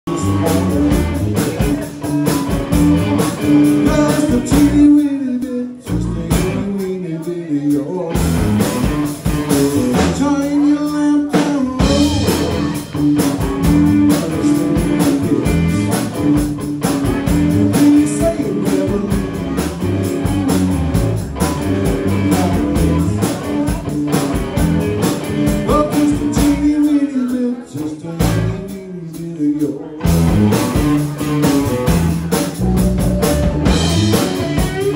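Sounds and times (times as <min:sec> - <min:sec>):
bass guitar: 0:00.0 - 0:34.9
man singing: 0:00.0 - 0:34.9
drum kit: 0:00.1 - 0:07.0, 0:07.7 - 0:27.4, 0:28.2 - 0:34.9
electric guitar: 0:00.1 - 0:34.9.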